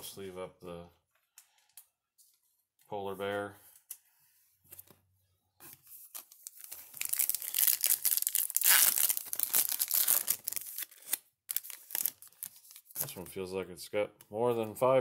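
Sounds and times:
foil wrapper tearing and crinkling: 6.4s - 12.9s.

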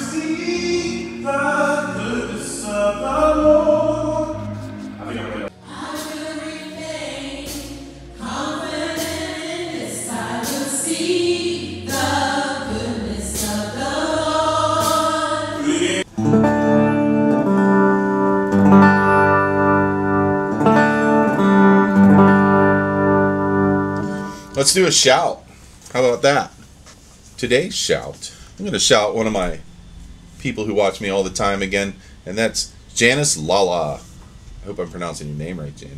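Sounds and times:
women singing gospel: 0.0s - 16.1s
electric guitar sustained chords: 0.0s - 24.8s
keyboard accompaniment: 0.0s - 24.8s.

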